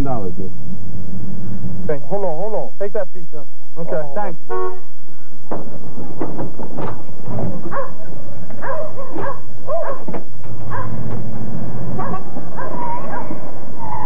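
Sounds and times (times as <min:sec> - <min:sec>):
dog barking: 0:07.4 - 0:11.0, 0:12.0 - 0:13.4.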